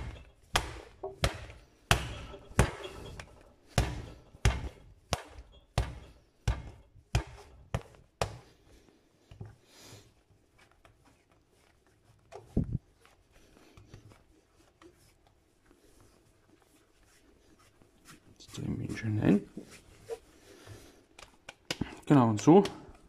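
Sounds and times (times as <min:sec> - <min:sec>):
dough thumping on worktop: 0:00.0 - 0:08.5
dough pressing and rolling: 0:00.0 - 0:23.0.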